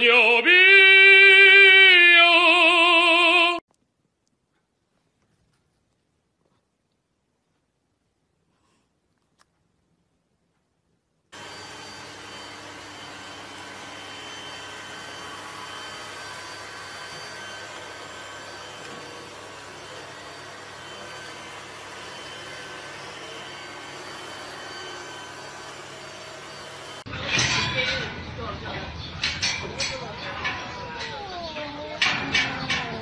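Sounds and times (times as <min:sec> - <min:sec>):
robot vacuum whirring hum: 0:11.4 - 0:27.1.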